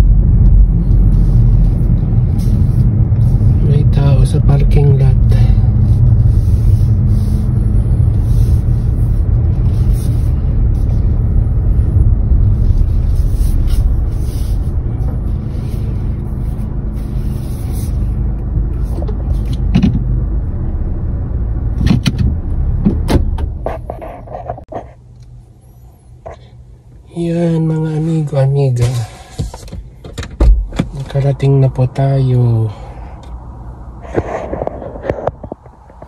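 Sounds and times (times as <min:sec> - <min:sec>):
car engine and road rumble: 0:00.0 - 0:36.0
sharp clicks and knocks: 0:19.0 - 0:20.1, 0:21.8 - 0:24.7.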